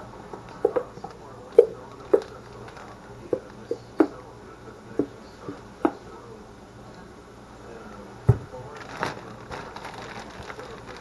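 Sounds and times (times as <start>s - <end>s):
plastic bottles and bags clicking: 1.7s - 3.6s, 8.7s - 11.0s.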